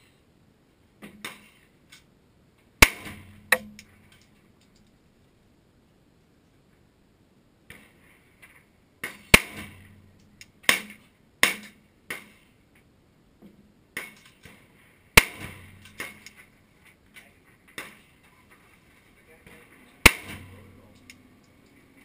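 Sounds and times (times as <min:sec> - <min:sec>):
pistol gunshots with echo: 0:02.8 - 0:04.0, 0:09.0 - 0:12.4, 0:15.2 - 0:16.4, 0:20.0 - 0:20.8.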